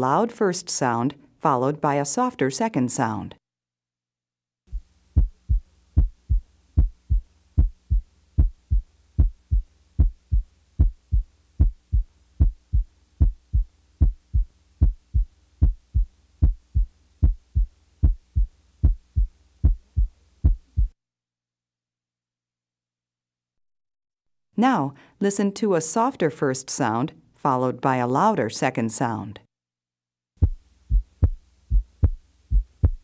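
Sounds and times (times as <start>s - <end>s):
heartbeat through stethoscope: 4.7s - 21.0s, 30.4s - 33.0s.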